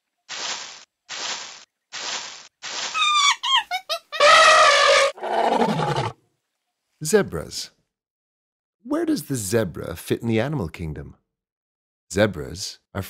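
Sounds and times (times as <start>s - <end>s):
animal braying: 3.0s - 6.2s.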